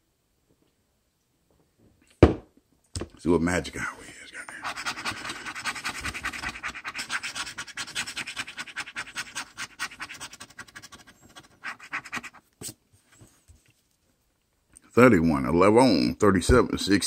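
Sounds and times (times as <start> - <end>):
scraping scratch-off ticket: 4.4 - 12.4.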